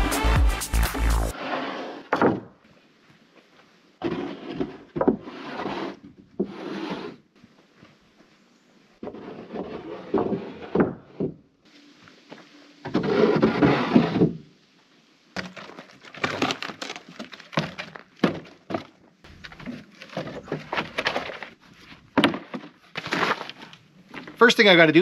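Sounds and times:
wooden spool scraping: 1.0 - 2.8, 4.0 - 8.0, 9.0 - 11.4, 12.8 - 14.5, 15.4 - 24.5
wooden knocks and clatter: 2.1 - 2.6, 4.0 - 5.2, 15.4 - 24.4.

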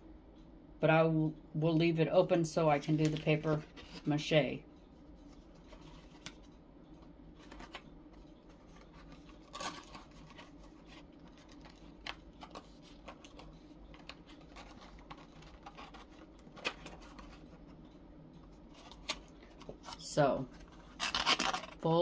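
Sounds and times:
low room hum: 0.0 - 22.0
cardboard boxes being folded: 8.6 - 17.5.

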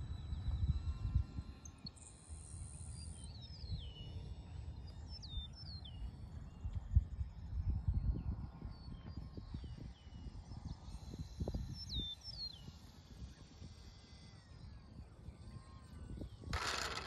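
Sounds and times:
wind rumble on microphone: 0.0 - 17.0
birds whistling: 11.0 - 14.0.

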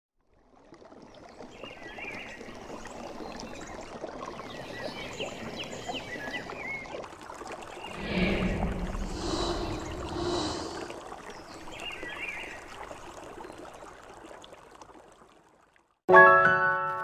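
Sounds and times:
river water running: 0.8 - 14.6
birds chirping: 7.8 - 12.6
music: 16.1 - 17.0.

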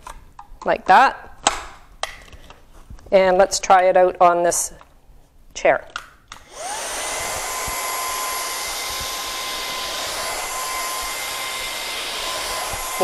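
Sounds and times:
vacuum motor whining: 6.4 - 13.0.

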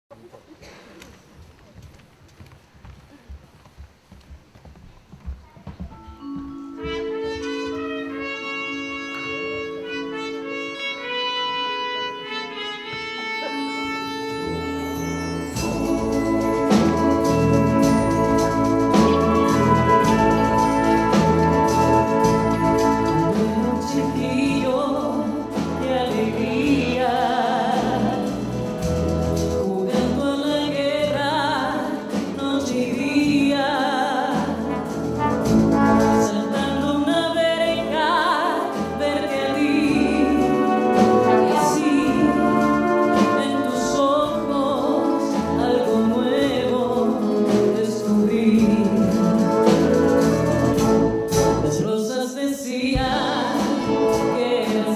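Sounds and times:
wind band sustained chords: 6.6 - 27.1, 38.6 - 45.6
woman singing with vibrato: 18.9 - 28.5, 29.6 - 34.9, 36.0 - 49.9, 51.6 - 54.9.

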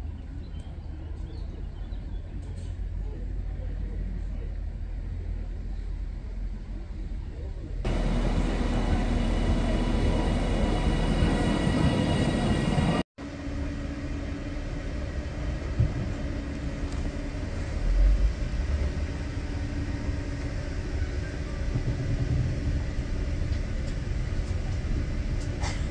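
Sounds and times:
train pulling into platform: 7.8 - 25.9
electric train running past: 7.9 - 25.7.

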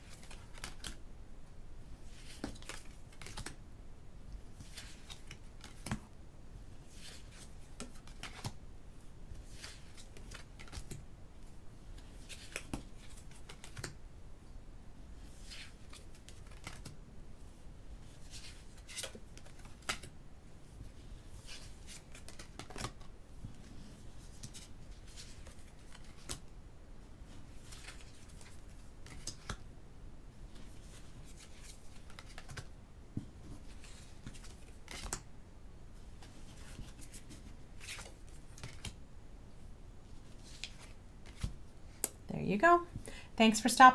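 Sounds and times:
cards swishing and slapping: 0.0 - 1.0, 2.1 - 3.6, 4.6 - 6.1, 6.9 - 8.6, 9.3 - 11.0, 12.0 - 14.0, 15.3 - 17.0, 18.1 - 20.1, 20.9 - 26.5, 27.4 - 29.6, 30.5 - 35.3, 36.2 - 39.0, 40.1 - 42.1.

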